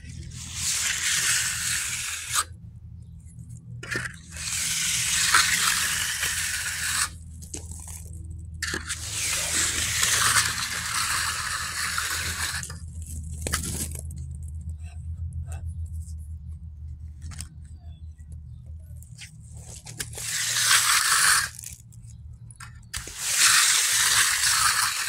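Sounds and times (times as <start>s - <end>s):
low steady hum: 0.0s - 25.0s
trowel scraping wet concrete: 0.1s - 2.5s, 3.8s - 14.0s, 19.2s - 21.8s, 22.6s - 25.0s.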